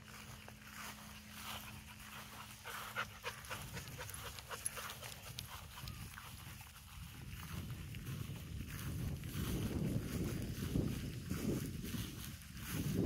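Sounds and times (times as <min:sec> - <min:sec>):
dog panting: 0:01.5 - 0:06.2.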